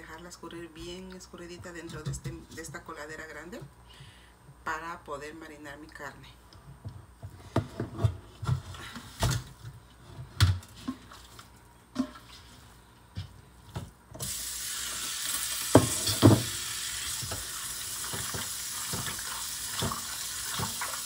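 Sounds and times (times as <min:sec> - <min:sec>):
tap water running: 0:14.2 - 0:21.0
clunks against colander: 0:15.8 - 0:16.6.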